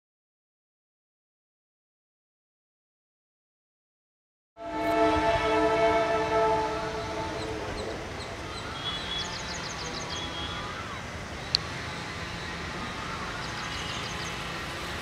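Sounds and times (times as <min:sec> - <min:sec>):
locomotive horn blast: 0:04.6 - 0:10.6
birds chirping: 0:04.9 - 0:15.0.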